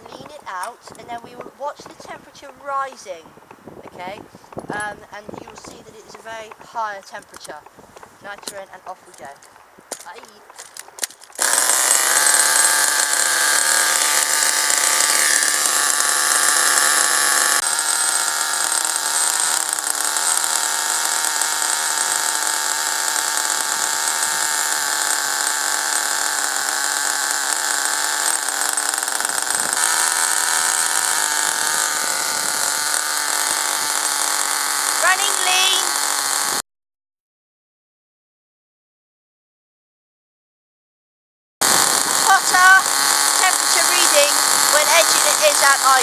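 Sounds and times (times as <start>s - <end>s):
small model car engine running: 10.6s - 36.6s, 41.6s - 46.0s.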